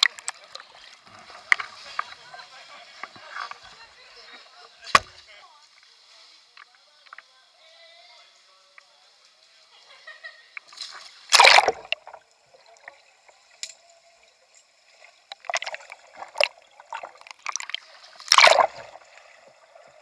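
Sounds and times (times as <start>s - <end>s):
water rushing over kayak: 11.3s - 12.2s, 15.3s - 20.0s
muffled underwater splashes and bubbling: 11.3s - 13.4s, 14.9s - 20.0s.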